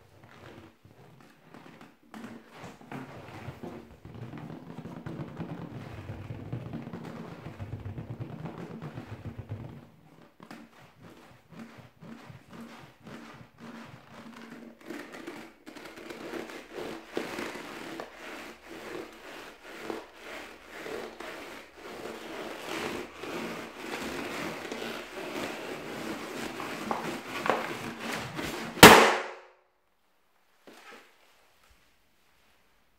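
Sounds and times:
balloon squeezed and rubbed: 0.0s - 29.4s
balloon bursting with loud pop: 28.4s - 29.5s.

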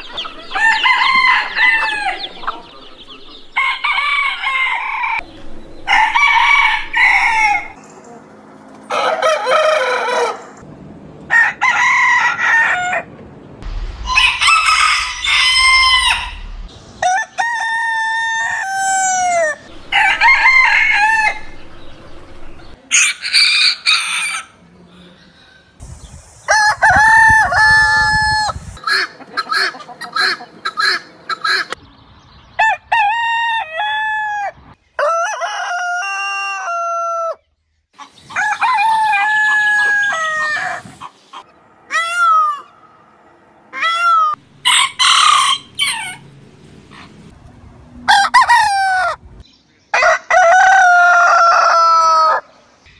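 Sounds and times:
roosters crowing: 0.0s - 7.8s, 8.8s - 10.6s, 11.3s - 13.2s, 14.0s - 24.7s, 26.4s - 31.7s, 32.5s - 37.4s, 38.0s - 46.3s, 46.9s - 52.6s.

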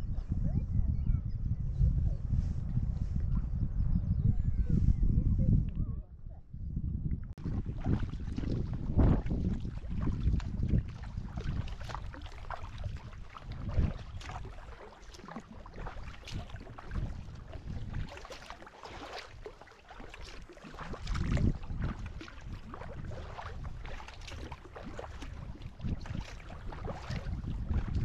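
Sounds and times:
wind rumble on microphone: 0.0s - 28.0s
water dripping and lapping: 7.3s - 28.0s
paddle splashing water: 7.4s - 28.0s.

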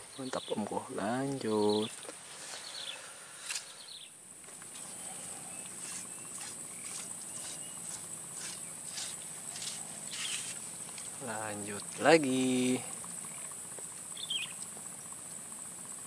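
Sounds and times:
insects droning: 0.0s - 16.0s.

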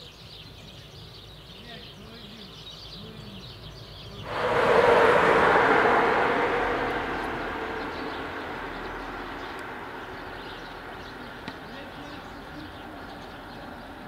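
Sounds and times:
loud rushing noise: 4.2s - 11.8s.

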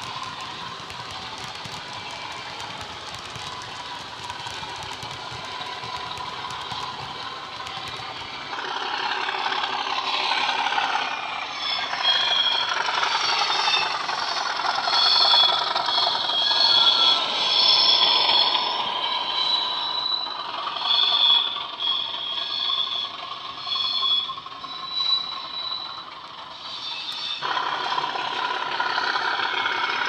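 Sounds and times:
high whistling tones: 0.0s - 28.1s
model diesel engine sound: 0.0s - 30.0s
model wheels clicking on track: 0.0s - 30.0s.

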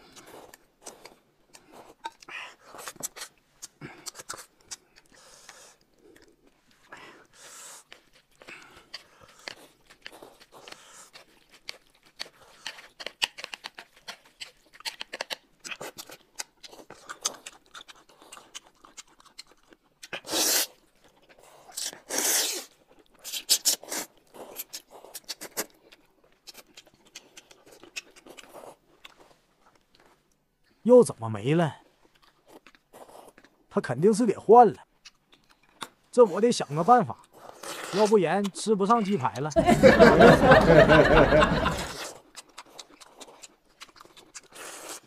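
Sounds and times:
chewing and crunching food: 0.0s - 39.6s, 40.2s - 45.0s.

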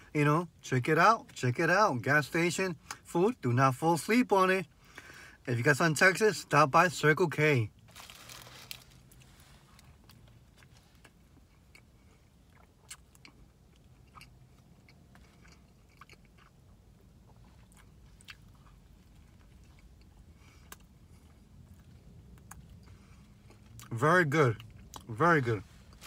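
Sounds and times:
faint chewing: 9.0s - 23.9s.

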